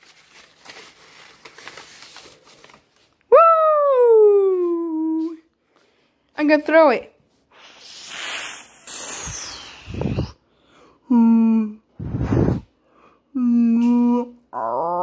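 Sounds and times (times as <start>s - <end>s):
person breathing noisily: 7.5s - 11.2s, 11.9s - 13.3s
person humming a note: 11.1s - 11.8s, 13.4s - 15.0s.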